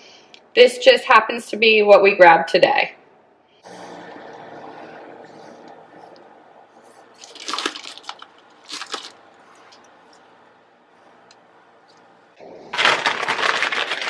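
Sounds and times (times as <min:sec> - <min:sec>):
low steady hum: 0:00.0 - 0:14.0
crunchy crinkles of food: 0:07.2 - 0:10.2, 0:12.7 - 0:14.0.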